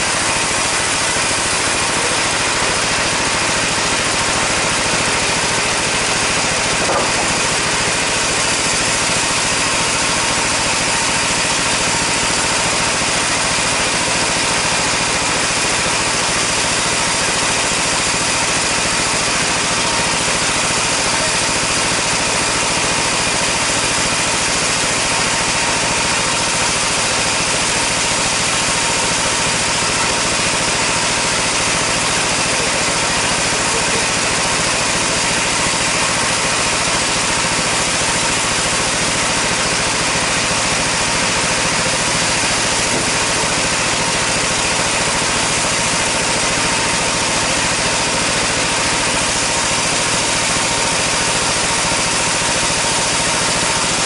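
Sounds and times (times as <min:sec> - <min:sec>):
band saw idling: 0:00.0 - 0:54.0.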